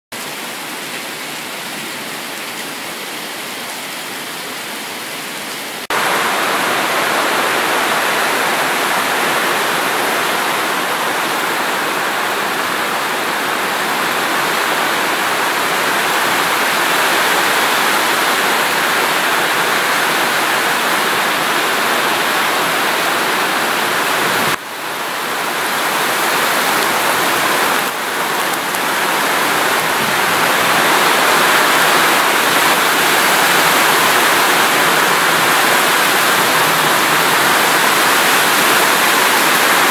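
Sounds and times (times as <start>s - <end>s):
heavy rain on corrugated iron: 0.1s - 39.9s.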